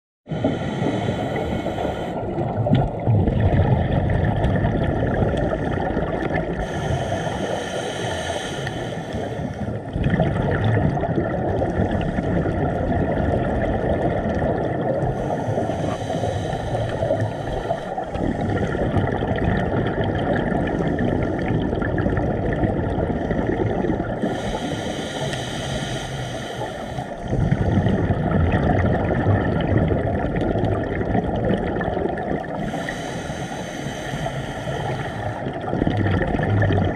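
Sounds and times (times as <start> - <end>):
diver inhaling through regulator: 0.3 - 2.6, 5.4 - 10.0, 11.7 - 12.8, 15.0 - 19.2, 23.0 - 28.2, 32.5 - 35.8
bubbling exhaled air: 0.3 - 36.9
low water noise: 0.3 - 36.9.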